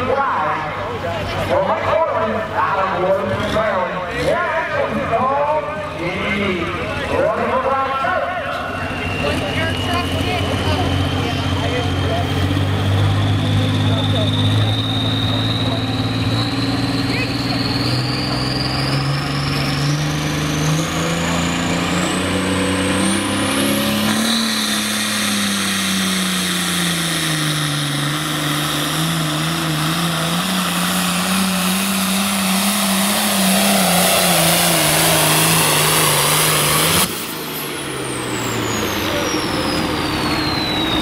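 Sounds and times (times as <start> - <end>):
diesel tractor engine at full throttle: 0.0 - 41.0
turbocharger whistle: 8.5 - 28.0, 29.2 - 41.0.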